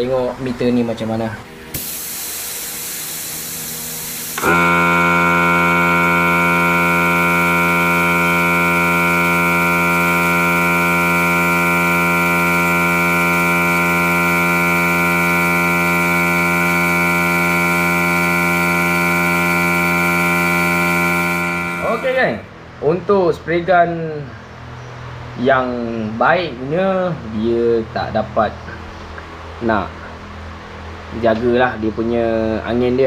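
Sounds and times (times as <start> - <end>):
air compressor humming: 0.0 - 22.8
compressed air hissing: 1.6 - 5.2.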